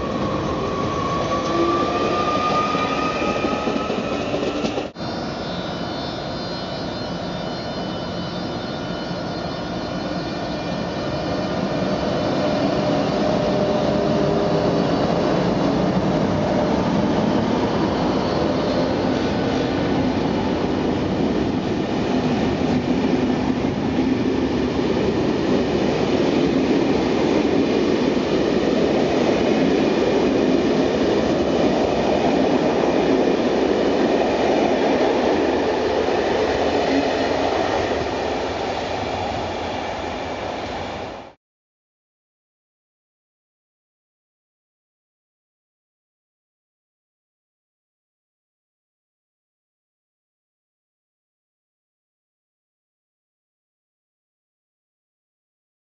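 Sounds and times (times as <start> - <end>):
train wheels rumbling on rail: 0.0 - 5.0, 10.7 - 41.3
faint high whine: 4.2 - 15.3.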